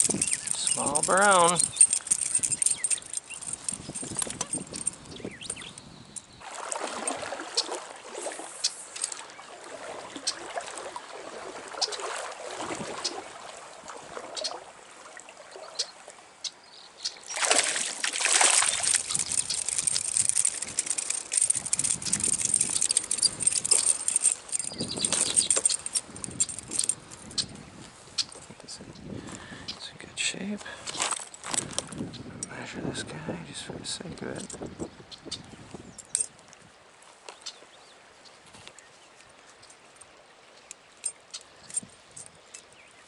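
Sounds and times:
stream trickling: 0.0 - 43.0
fish splashing in water: 6.4 - 15.7, 17.3 - 26.9.

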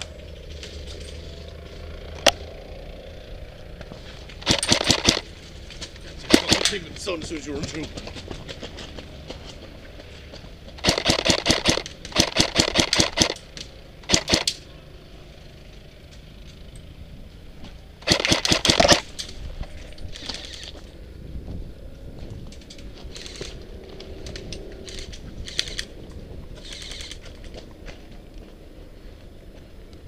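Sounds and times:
airsoft rifle full-auto bursts: 4.4 - 5.3, 6.3 - 6.8, 10.8 - 13.4, 14.1 - 14.6, 18.0 - 19.1.

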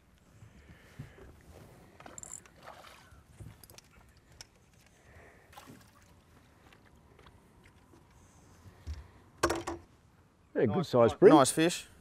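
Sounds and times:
water splashing and dripping: 5.5 - 7.9.

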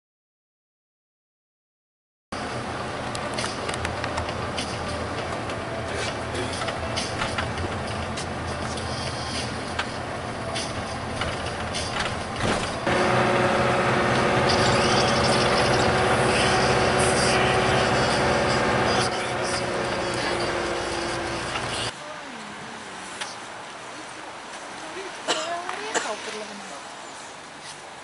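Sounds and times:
bus engine and road noise: 2.3 - 28.0
drone of held tones: 12.9 - 21.9.

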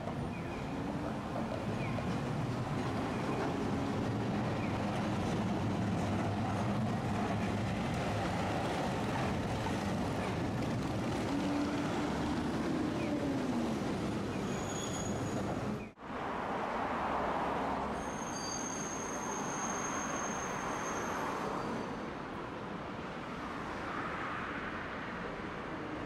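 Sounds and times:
streetcar wheels and motor rumble: 0.0 - 16.0.

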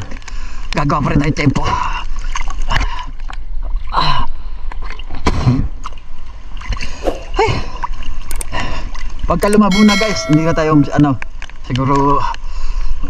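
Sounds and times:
water splashing and sloshing: 1.9 - 9.3.

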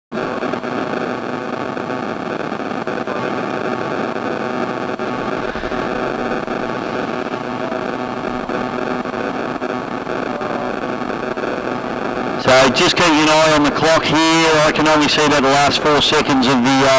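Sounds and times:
distant boat engines droning: 3.2 - 14.8.

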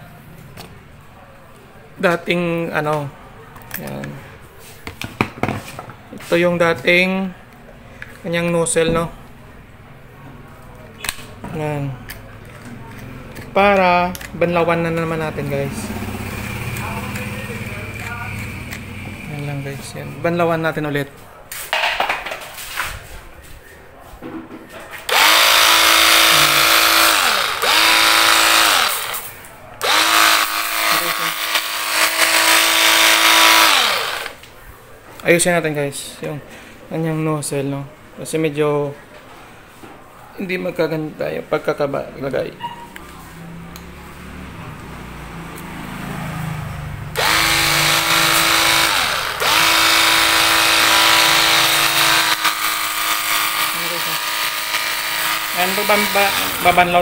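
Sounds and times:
pump motor whining: 25.1 - 34.4, 47.1 - 57.0.

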